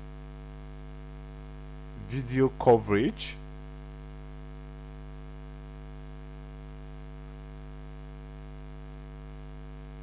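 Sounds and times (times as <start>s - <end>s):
electrical mains hum: 0.0s - 10.0s.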